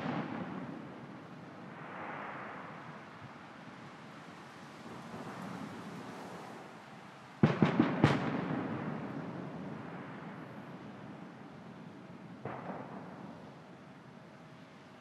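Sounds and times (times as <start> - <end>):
fireworks banging: 0.0 - 1.0, 7.4 - 10.2, 12.4 - 13.5.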